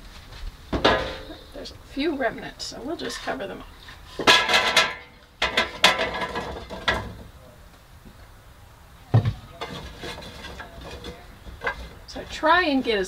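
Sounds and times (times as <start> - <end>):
dull knock: 9.1 - 9.4.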